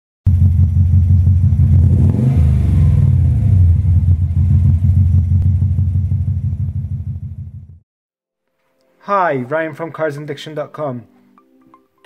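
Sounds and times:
loud engine running: 0.3 - 7.8.

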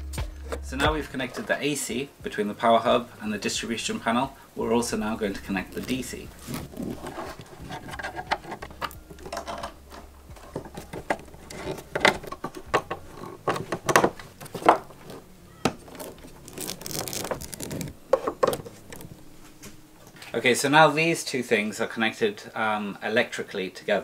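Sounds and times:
cables clicking and rustling: 4.5 - 20.4.

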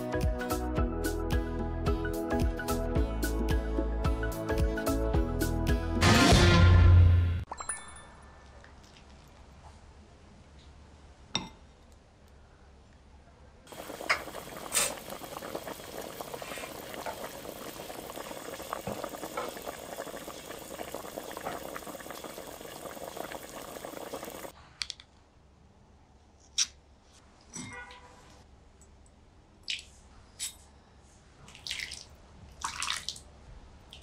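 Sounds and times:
liquid boiling and spattering: 13.7 - 24.5.

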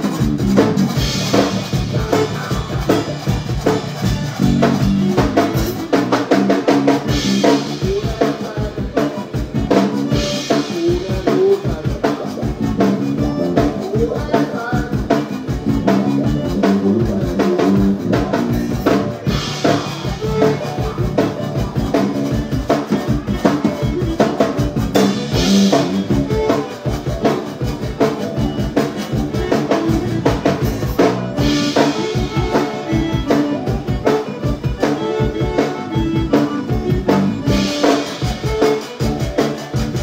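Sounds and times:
bass drum and snare beat: 0.0 - 40.0
live zydeco band playing: 0.0 - 40.0.

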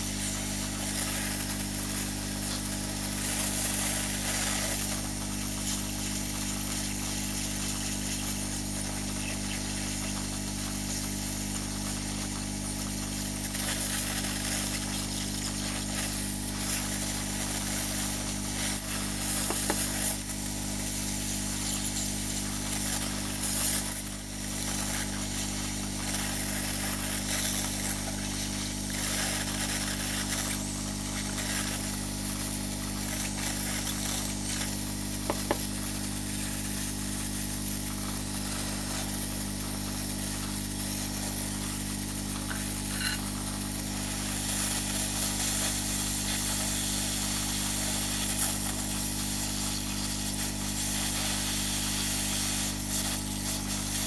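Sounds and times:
hot-air gun hissing: 0.0 - 54.0.

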